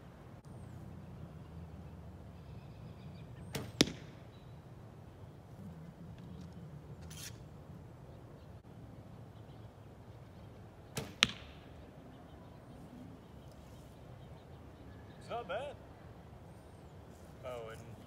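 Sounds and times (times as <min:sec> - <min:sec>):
bowstring snap: 0:03.5 - 0:04.2
arrow striking target: 0:03.5 - 0:04.3, 0:10.9 - 0:11.7
arrow scraping as drawn: 0:07.0 - 0:07.5.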